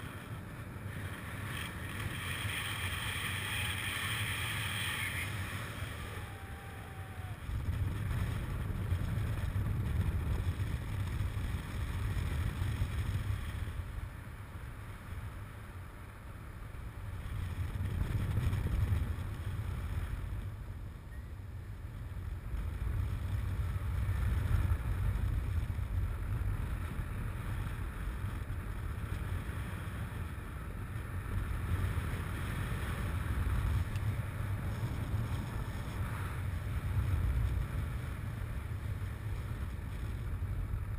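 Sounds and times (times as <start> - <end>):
wind buffeting microphone: 0.0 - 14.9, 16.8 - 40.9.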